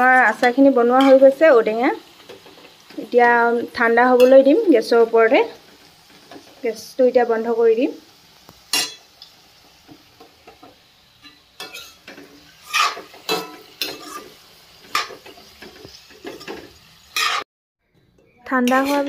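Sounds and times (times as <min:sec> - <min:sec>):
faint sizzle: 0:00.0 - 0:19.0
metal spatula scraping pan: 0:11.2 - 0:17.4, 0:18.5 - 0:19.0.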